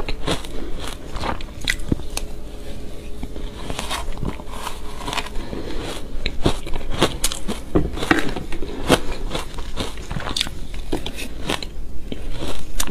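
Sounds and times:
crunching shaved ice: 0:00.0 - 0:02.3, 0:03.1 - 0:12.9.

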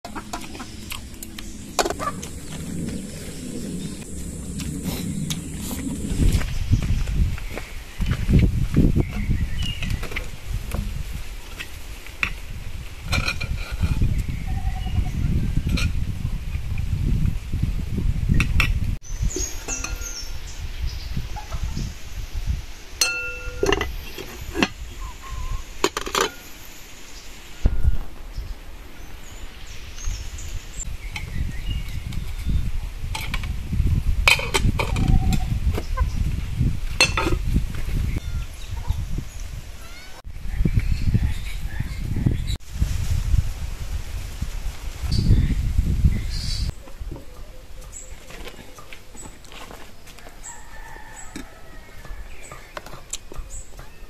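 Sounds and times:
low rumble: 0:00.1 - 0:09.6
metal lids clinking on pots: 0:19.6 - 0:20.2, 0:23.0 - 0:24.8, 0:25.8 - 0:26.4, 0:37.0 - 0:37.4
pot lid clinking on wooden table: 0:23.0 - 0:23.9.

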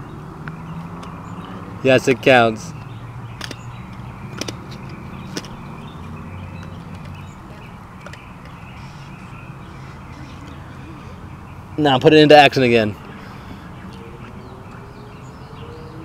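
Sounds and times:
faint bird calls: 0:02.7 - 0:11.9, 0:12.9 - 0:16.0
sharp clicks: 0:02.8 - 0:05.7.

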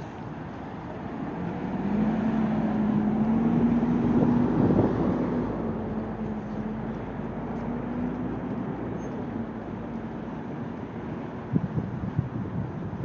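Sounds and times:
motor vehicle passing: 0:01.0 - 0:10.2.

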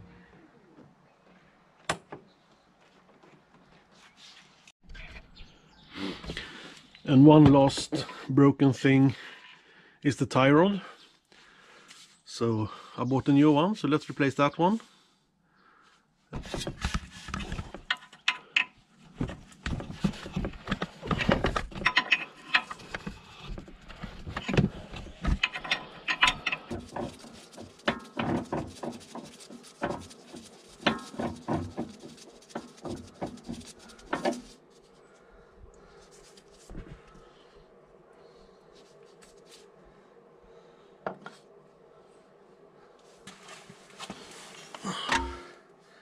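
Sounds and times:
wrenches clicking and scraping on metal: 0:17.3 - 0:18.8, 0:19.7 - 0:34.6, 0:44.9 - 0:45.5.

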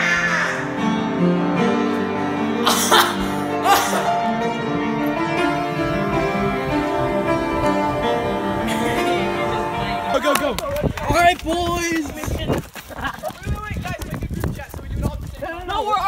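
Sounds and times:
upright piano chords: 0:00.0 - 0:11.0
short noisy bursts: 0:05.4 - 0:10.6.

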